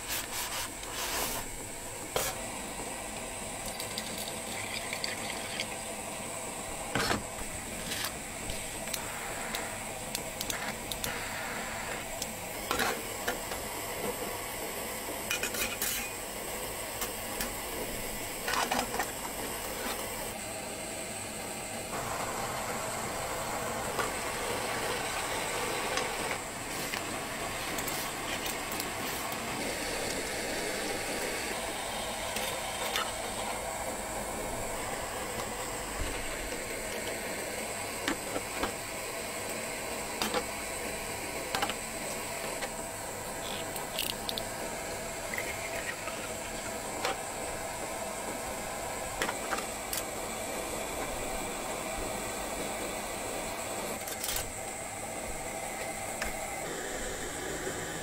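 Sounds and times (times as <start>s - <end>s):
camp stove hissing: 0.0s - 58.0s
metal utensils clinking and scraping: 15.3s - 16.2s.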